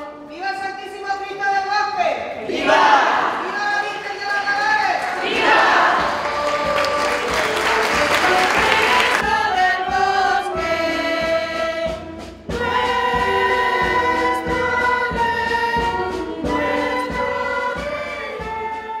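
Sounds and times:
choir singing a hymn: 2.4s - 3.4s, 5.1s - 19.0s.

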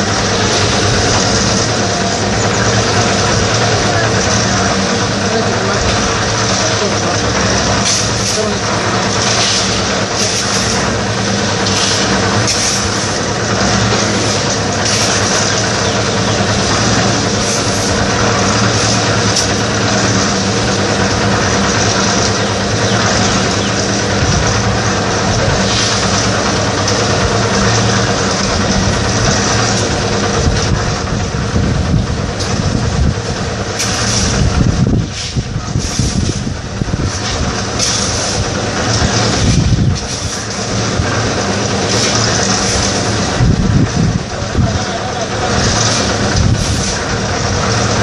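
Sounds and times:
clatter: 0.0s - 48.0s
concrete mixer engine running: 0.0s - 48.0s.

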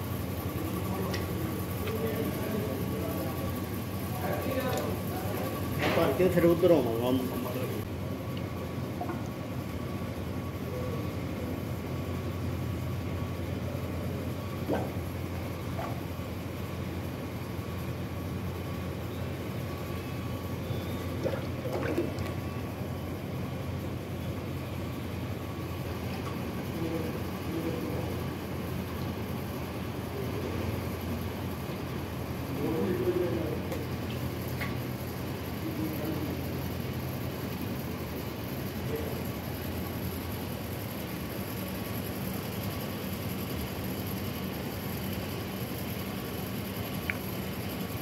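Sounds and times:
factory machinery hum: 0.0s - 48.0s
faint constant whine: 0.0s - 48.0s.

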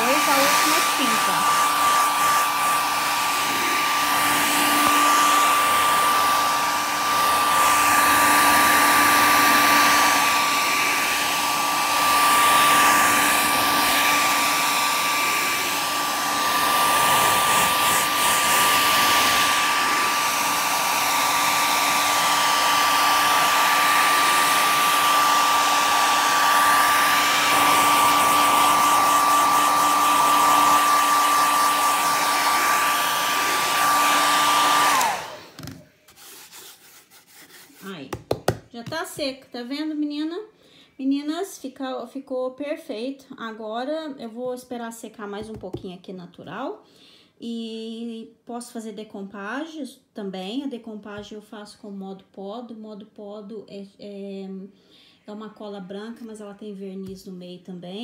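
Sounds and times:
hair dryer blowing: 0.0s - 35.9s, 37.8s - 39.3s.

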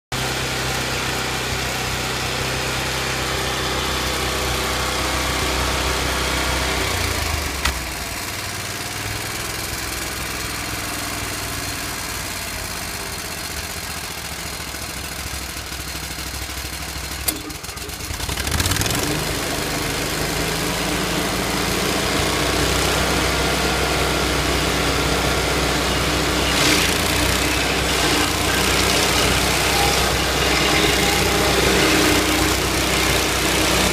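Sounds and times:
stump grinder engine running: 0.2s - 33.9s
cutter wheel grinding stump: 17.3s - 33.9s.

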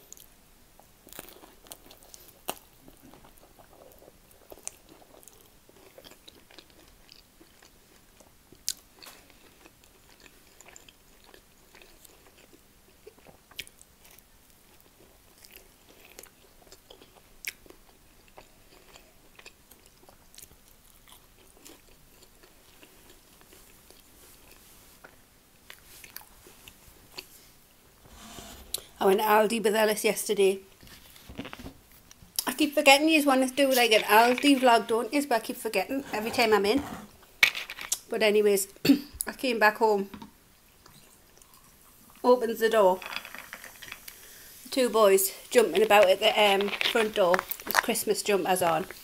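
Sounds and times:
person chewing food: 0.1s - 27.4s.

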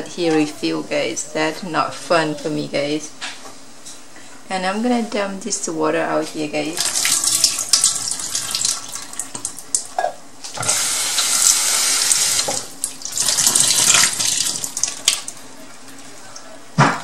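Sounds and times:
water pouring into a sink: 6.8s - 9.8s, 10.6s - 16.1s.

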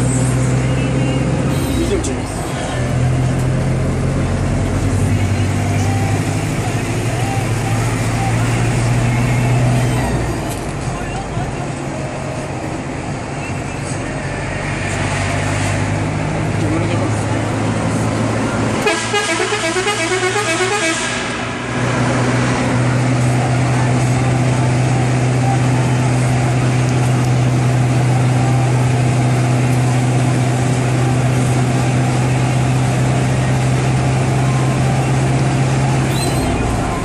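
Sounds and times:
bus air horn warbling: 1.5s - 2.0s, 18.8s - 21.4s
loud low drone: 17.5s - 26.8s.

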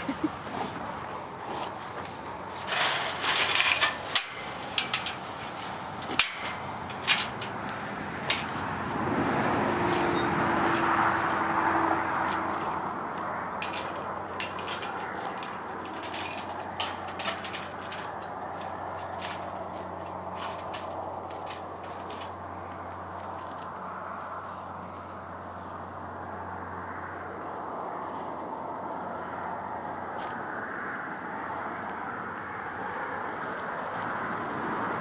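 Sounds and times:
rushing sound with low hum: 0.0s - 35.0s
horse tearing grass: 0.4s - 25.8s
metal gate clanking and rattling: 1.5s - 23.6s.

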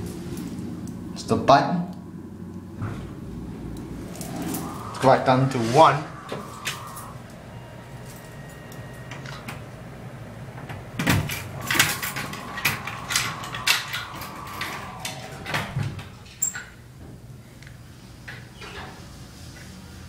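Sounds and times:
elevator hum: 1.9s - 17.1s.

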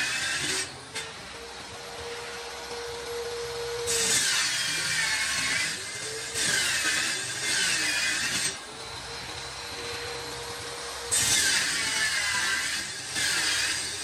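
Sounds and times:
saw blade running freely: 0.0s - 14.0s
table saw cutting board: 0.0s - 14.0s.

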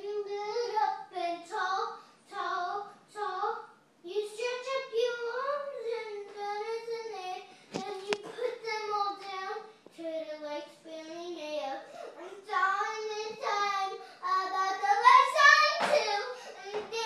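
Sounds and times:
girl singing: 0.0s - 17.0s.

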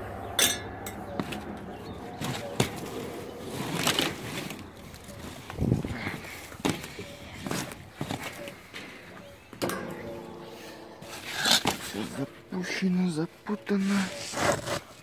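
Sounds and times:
rubber hoses knocking and rustling: 2.1s - 12.6s.

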